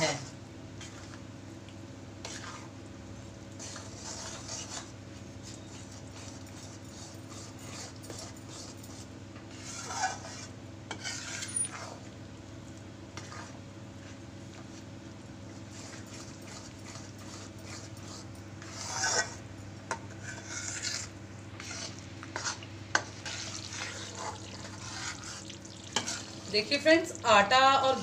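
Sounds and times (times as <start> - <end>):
spatula scraping metal pan: 2.2 - 2.7, 3.6 - 4.9, 9.5 - 12.0, 13.2 - 13.6, 15.7 - 26.7.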